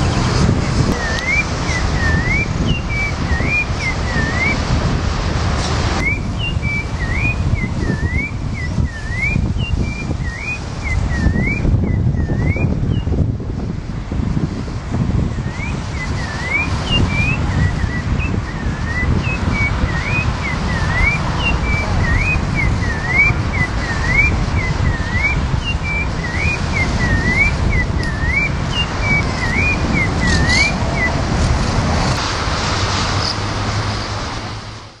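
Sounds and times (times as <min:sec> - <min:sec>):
songbird whistling: 0:01.0 - 0:04.6, 0:06.0 - 0:13.2, 0:15.3 - 0:31.2.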